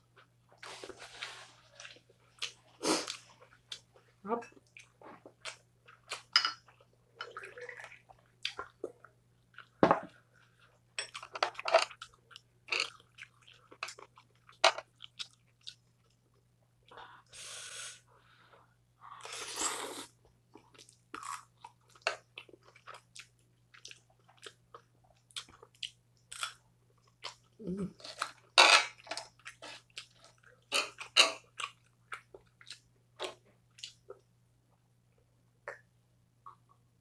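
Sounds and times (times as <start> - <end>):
chewing and crunching: 8.1 - 16.4, 20.5 - 34.2.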